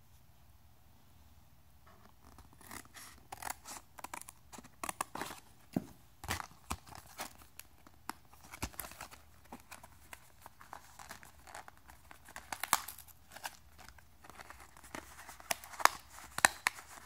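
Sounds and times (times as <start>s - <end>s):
cardboard peeling apart: 2.2s - 5.5s
paper crackling: 6.2s - 17.0s.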